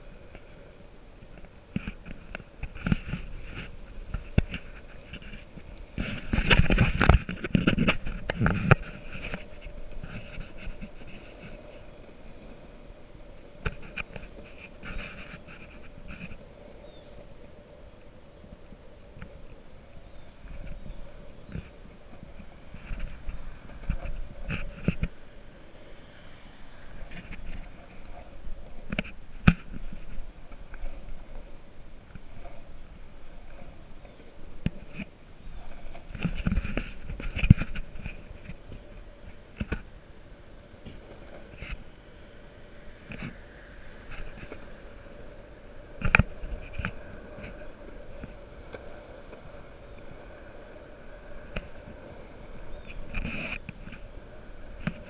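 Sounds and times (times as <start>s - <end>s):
wheels rolling over rough asphalt: 0.0s - 55.0s.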